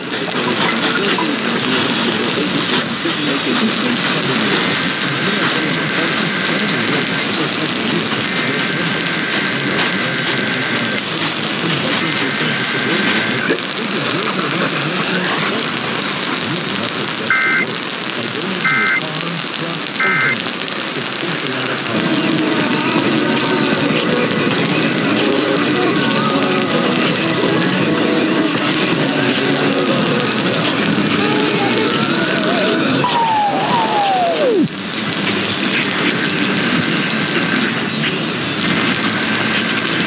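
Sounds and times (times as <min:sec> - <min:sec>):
radio static and hiss: 0:00.0 - 0:40.0
two-tone data warble: 0:17.3 - 0:17.7, 0:18.6 - 0:19.1, 0:20.0 - 0:21.4.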